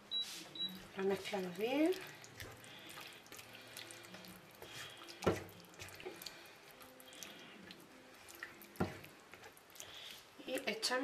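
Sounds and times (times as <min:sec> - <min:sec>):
spatula stirring thick sauce: 0:00.7 - 0:10.7.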